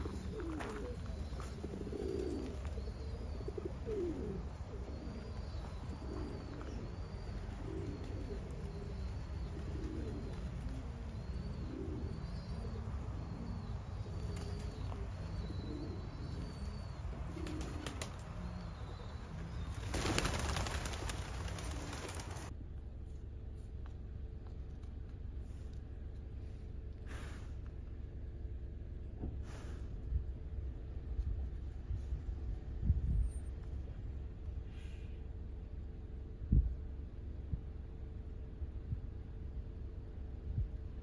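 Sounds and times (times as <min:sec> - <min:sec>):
doves cooing: 0:00.0 - 0:22.5
small birds chirping: 0:00.0 - 0:22.5.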